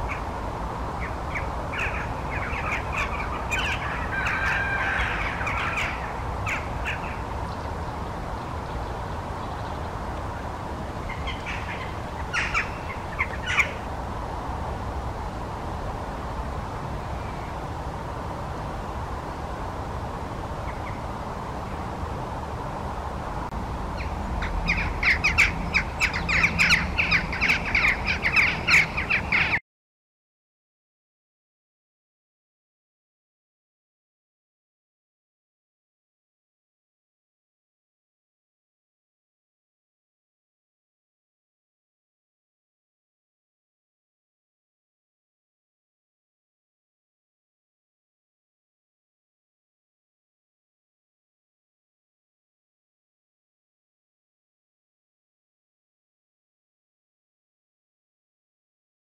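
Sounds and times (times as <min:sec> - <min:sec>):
steady background noise: 0:00.0 - 0:29.6
jackdaws calling: 0:01.0 - 0:07.3, 0:11.1 - 0:13.9, 0:24.0 - 0:29.6.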